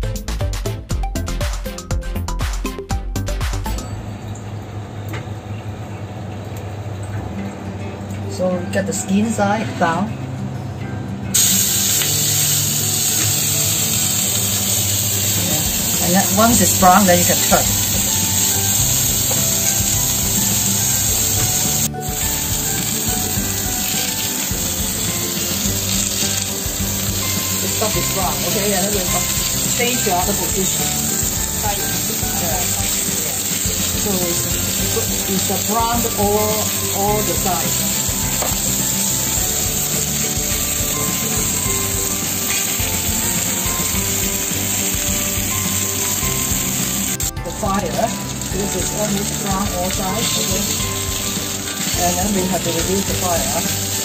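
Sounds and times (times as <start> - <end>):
background music: 0.0 - 4.2, 7.4 - 54.0
meat sizzling in hot oil: 11.4 - 54.0.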